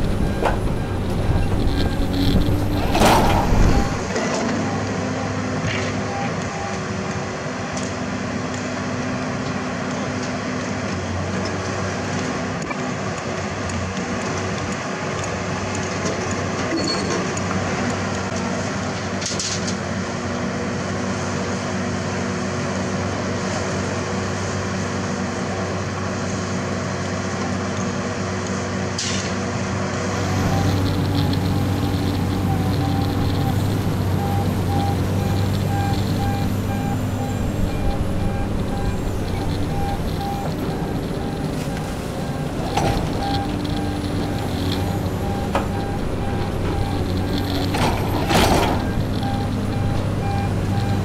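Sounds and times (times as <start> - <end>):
diesel engine running: 0.0 - 12.5, 29.5 - 51.0
faint repeated beep: 0.1 - 5.3, 30.3 - 51.0.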